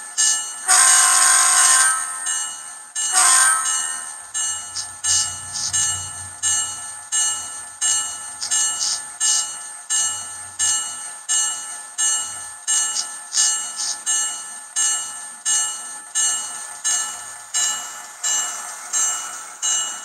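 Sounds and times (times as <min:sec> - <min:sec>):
locomotive bell from small speaker: 0:00.0 - 0:20.0.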